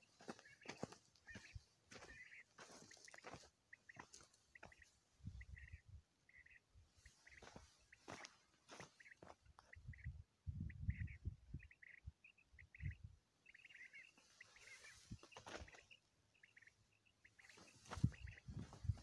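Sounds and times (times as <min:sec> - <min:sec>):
footsteps on dry stony ground: 0:00.0 - 0:05.8, 0:07.0 - 0:09.8, 0:14.0 - 0:16.0, 0:17.4 - 0:19.0
small birds chirping: 0:00.0 - 0:19.0.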